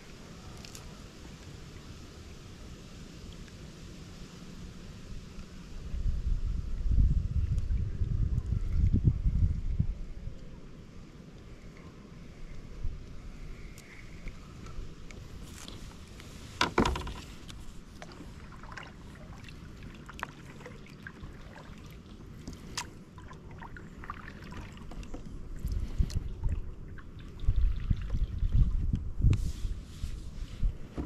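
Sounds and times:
water lapping against hull: 11.4s - 31.0s
small knocks on hull: 16.6s - 17.4s.

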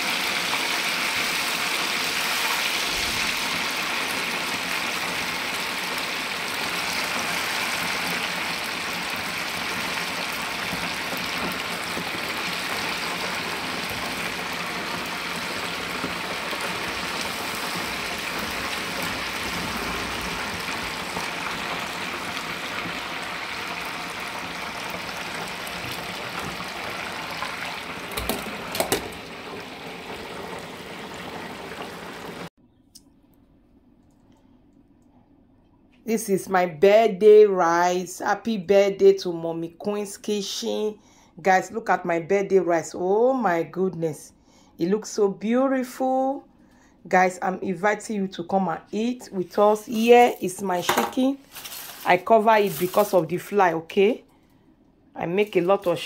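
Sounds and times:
chicken sizzling in deep fryer: 0.0s - 32.5s, 49.7s - 53.3s.

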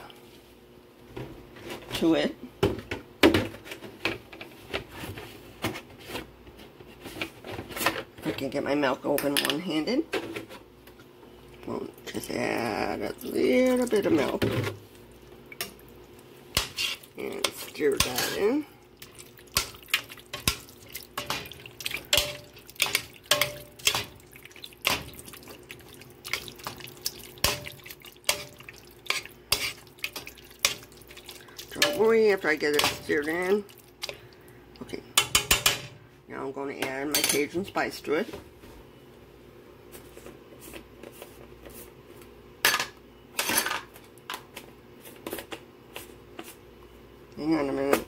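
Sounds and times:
noodles squelching when stirred: 11.4s - 35.2s
utensil scraping metal pot: 16.5s - 34.2s.

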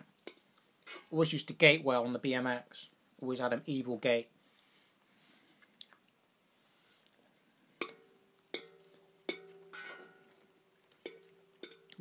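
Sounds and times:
metal fork clinking against dish: 7.8s - 12.0s.

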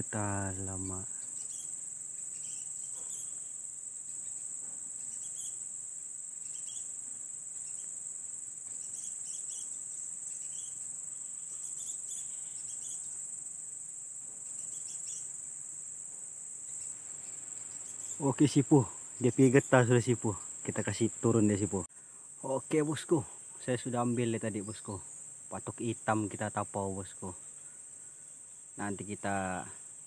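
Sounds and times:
insects high-pitched drone: 0.0s - 30.0s
brief high insect chirps: 1.1s - 15.5s.

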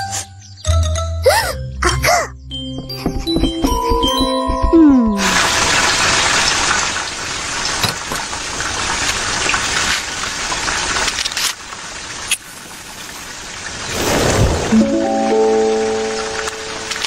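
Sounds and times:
chiming jingle: 14.8s - 17.0s.

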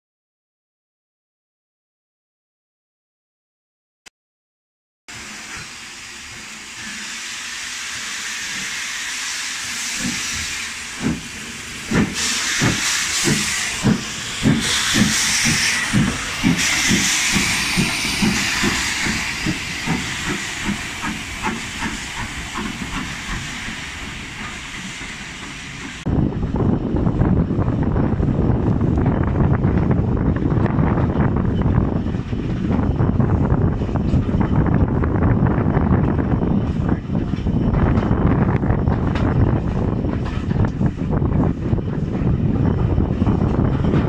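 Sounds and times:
steam hissing: 5.1s - 26.1s
moving train rumble: 5.1s - 44.0s
steam locomotive exhaust chuffs: 5.1s - 44.0s
wind on microphone: 26.0s - 44.0s.

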